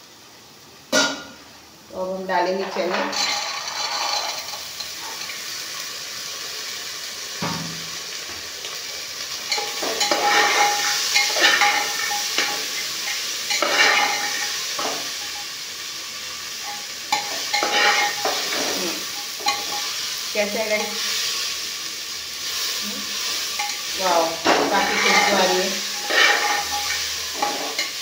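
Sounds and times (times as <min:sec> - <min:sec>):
chickpeas sizzling in a pot: 0:00.0 - 0:28.0
ladle scraping pot: 0:02.8 - 0:05.3, 0:09.5 - 0:15.0, 0:17.1 - 0:19.9, 0:24.5 - 0:28.0.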